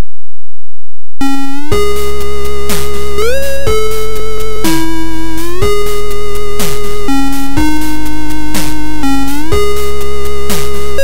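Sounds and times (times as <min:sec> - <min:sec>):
chiptune square-wave notes: 0:01.2 - 0:11.0.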